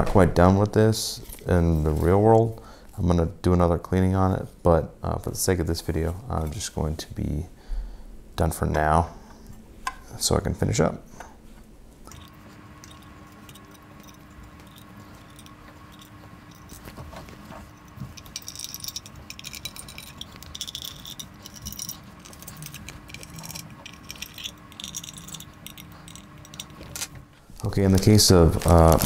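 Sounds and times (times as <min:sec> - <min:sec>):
screwdriver ticks and scrapes on metal: 0:18.1 - 0:26.8.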